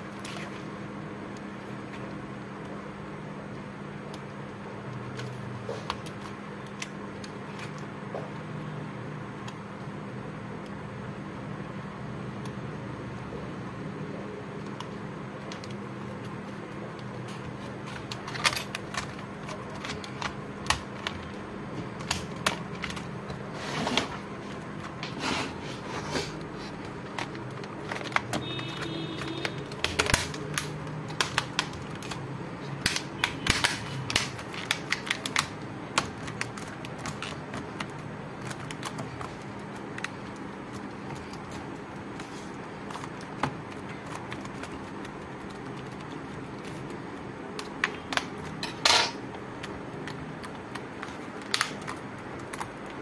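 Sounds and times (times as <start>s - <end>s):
plastic keyboard clicks and taps: 26.8s - 32.2s, 32.8s - 41.8s, 42.8s - 53.0s.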